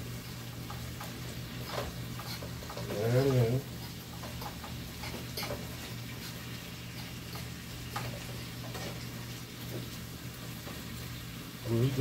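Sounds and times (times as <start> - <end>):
metal spoon scraping frying pan: 0.6 - 9.2.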